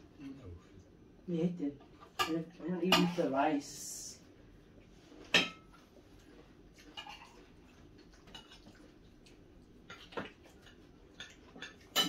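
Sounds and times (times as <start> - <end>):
cutlery clinking on plates: 5.2 - 5.7, 9.9 - 12.0.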